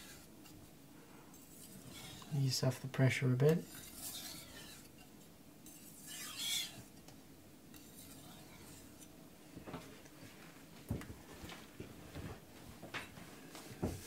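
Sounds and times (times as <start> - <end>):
knife blade scraping on wet whetstone: 0.0 - 0.6, 1.3 - 2.4, 3.5 - 7.0, 7.7 - 9.1.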